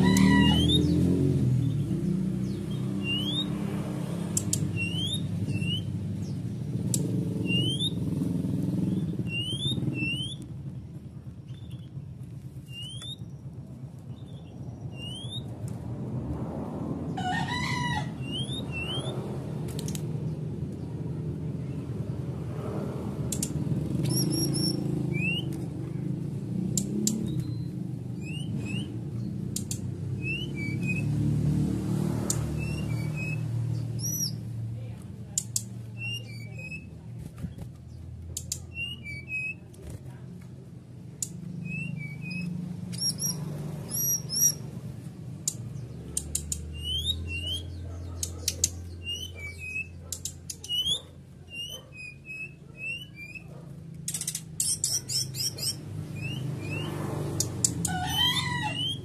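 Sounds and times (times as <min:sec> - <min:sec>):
bird whistling calls: 0:02.7 - 0:03.5, 0:04.5 - 0:06.0, 0:07.4 - 0:08.1, 0:08.9 - 0:10.5, 0:12.6 - 0:13.4, 0:14.9 - 0:15.5, 0:18.2 - 0:19.2, 0:24.0 - 0:25.6, 0:27.0 - 0:29.0, 0:29.6 - 0:31.1, 0:32.3 - 0:34.4, 0:35.9 - 0:37.0, 0:38.5 - 0:39.7, 0:41.6 - 0:44.6, 0:46.2 - 0:53.5, 0:54.1 - 0:59.0.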